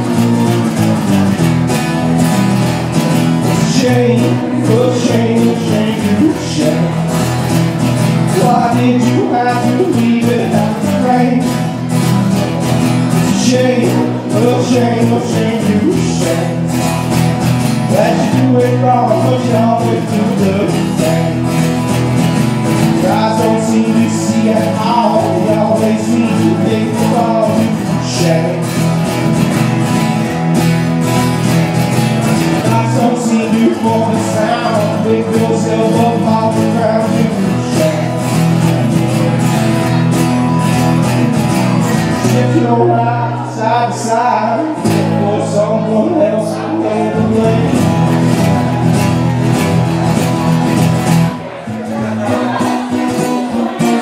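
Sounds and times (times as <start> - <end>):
acoustic guitar strumming: 0.0 - 54.0
bass guitar: 0.0 - 54.0
person singing: 3.2 - 22.0, 22.8 - 29.4, 32.3 - 39.6, 41.8 - 49.5, 51.4 - 54.0.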